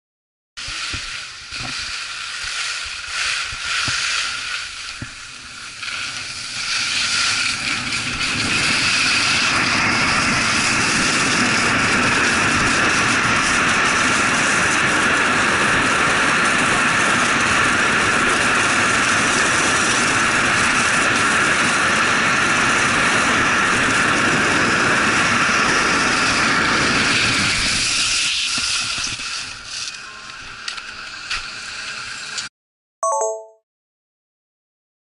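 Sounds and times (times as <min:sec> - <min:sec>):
skis hissing on snow: 0:00.6 - 0:15.6, 0:24.6 - 0:30.0
wind rushing on microphone: 0:05.8 - 0:29.6.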